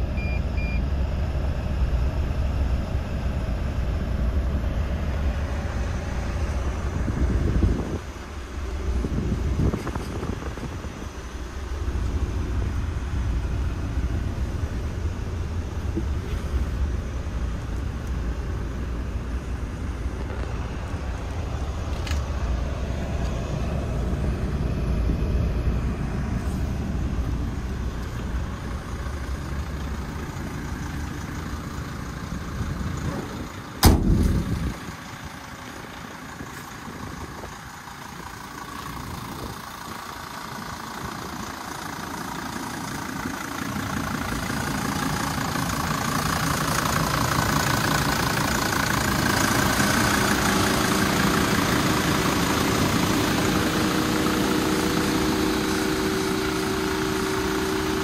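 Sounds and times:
diesel engine idling: 0.0s - 58.0s
van door slamming: 33.8s - 34.8s.

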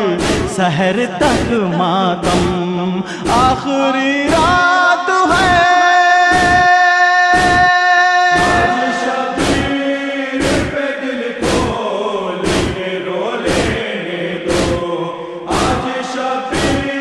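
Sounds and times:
chorus of voices chanting: 0.0s - 17.0s
hands striking chests: 0.2s - 0.5s, 6.3s - 6.7s, 7.3s - 7.7s, 8.4s - 8.8s, 9.4s - 9.7s, 10.4s - 10.8s, 11.4s - 11.8s, 12.4s - 12.8s, 13.5s - 13.8s, 14.5s - 14.8s, 15.5s - 15.8s, 16.5s - 16.9s.

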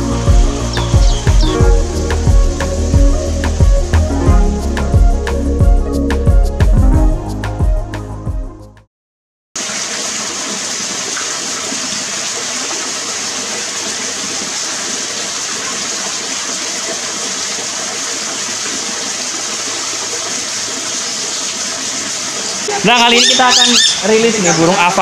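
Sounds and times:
water running over stones: 0.0s - 4.1s, 9.6s - 25.0s.

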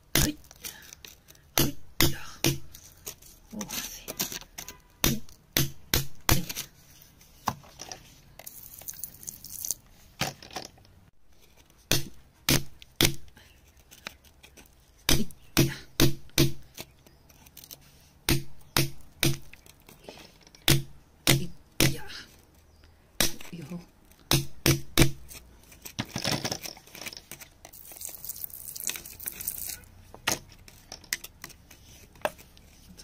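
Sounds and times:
metal tool scraping rock: 25.2s - 29.9s.

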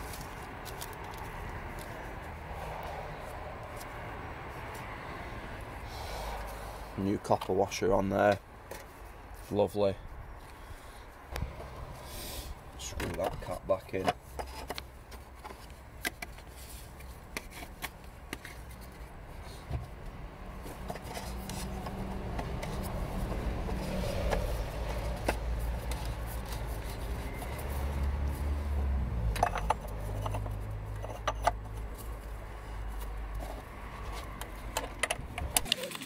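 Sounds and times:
clicks and clinks of plastic and tools: 34.4s - 36.0s.

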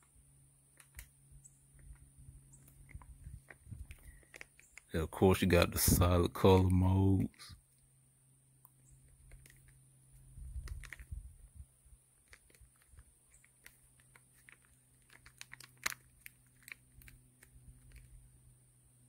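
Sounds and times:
low steady hum: 0.0s - 19.0s
small clicks: 0.7s - 5.0s, 8.6s - 11.2s, 12.2s - 18.2s.

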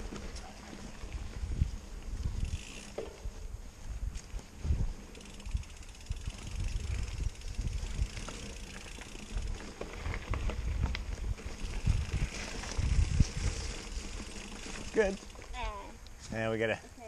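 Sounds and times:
bike rumbling over bumps: 0.0s - 16.0s
bike clicks and rattles: 0.0s - 16.1s
wind on microphone: 1.1s - 8.6s, 9.4s - 14.0s.

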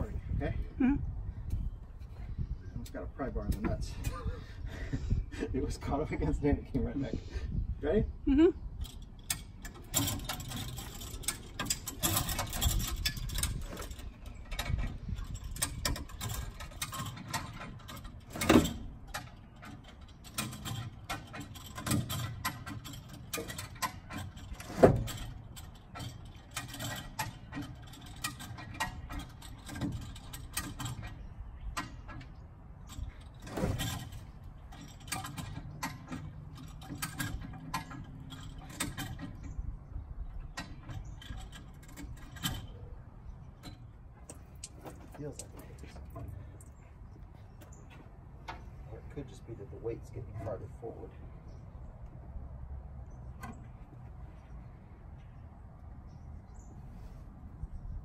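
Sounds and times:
metal clicking and creaking: 8.7s - 52.2s, 53.0s - 55.5s
loud metal clunks: 33.1s - 39.5s.

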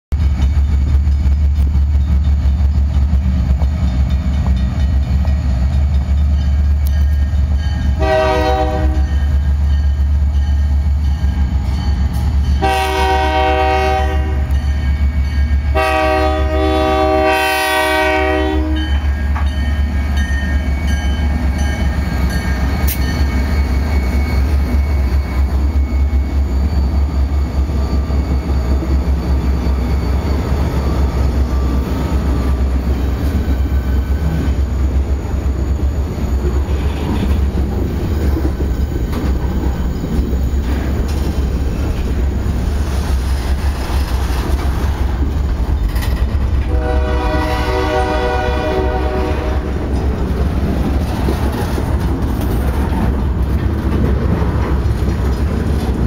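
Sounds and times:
train wheels clattering on rail: 0.1s - 56.0s
locomotives rumbling past: 0.2s - 56.0s
train horn blasts: 7.9s - 9.3s, 12.6s - 14.7s, 15.7s - 19.1s, 46.6s - 50.0s.

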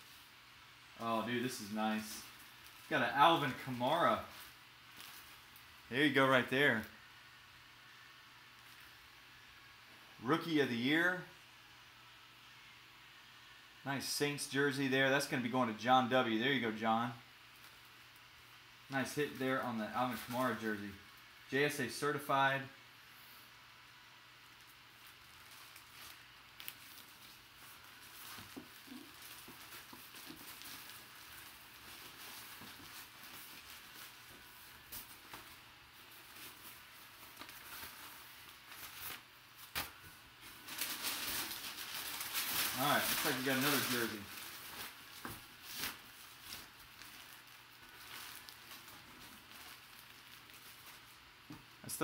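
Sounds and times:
plastic bag and paper crinkling: 1.0s - 6.6s, 19.0s - 20.9s, 24.4s - 51.7s
soft handling noises: 1.1s - 5.8s, 23.0s - 51.8s.

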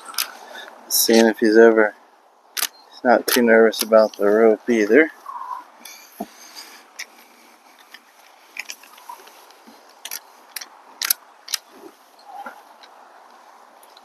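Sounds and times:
rope clicks: 9.9s - 11.7s.

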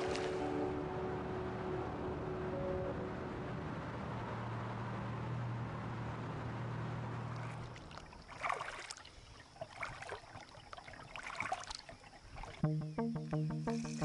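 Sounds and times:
car hum on road: 0.0s - 8.2s
kayak paddle splashing: 7.3s - 12.6s
music with steady beat: 12.6s - 14.0s.

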